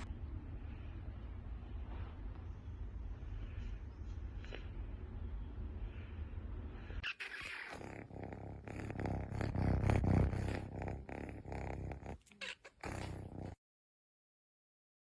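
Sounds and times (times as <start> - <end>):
animal pulsing rumble: 7.6 - 13.6.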